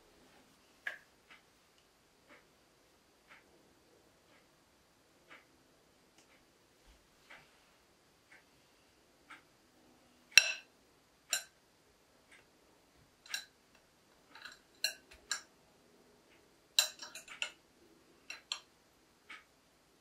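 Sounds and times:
metal cutlery clinking on glass dish: 10.4s - 10.7s, 14.3s - 15.5s, 16.8s - 17.6s.

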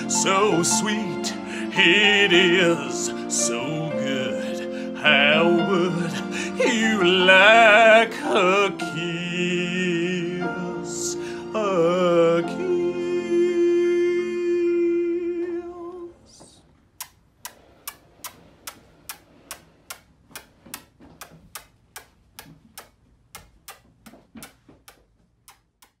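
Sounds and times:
man singing long note: 0.0s - 16.4s
clock-like ticking: 17.0s - 26.0s.

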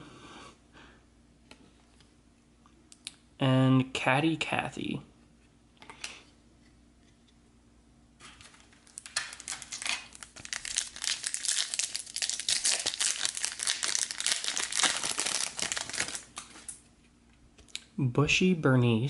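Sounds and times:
foil wrapper crinkling and tearing: 8.4s - 16.8s.

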